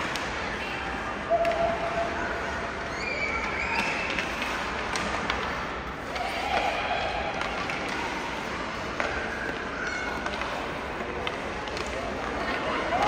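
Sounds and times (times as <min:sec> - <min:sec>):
hockey sticks and puck clicking: 0:00.0 - 0:13.0
ice rink background noise: 0:00.0 - 0:13.0.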